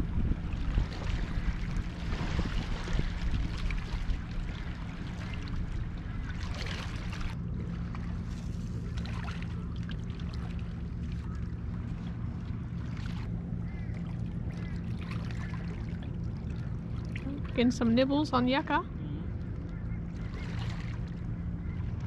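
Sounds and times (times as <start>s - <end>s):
steady low rumble: 0.0s - 22.0s
water lapping and trickling: 0.0s - 22.0s.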